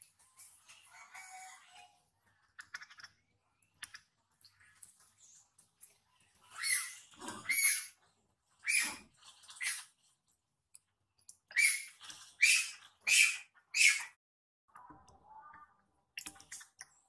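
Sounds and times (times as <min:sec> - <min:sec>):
baby monkey screaming: 0:06.5 - 0:08.0, 0:08.6 - 0:09.8, 0:11.5 - 0:14.2.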